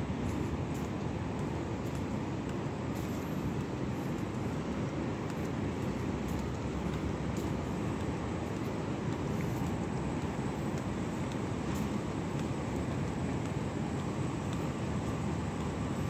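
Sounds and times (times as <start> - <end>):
low city rumble: 0.0 - 16.0.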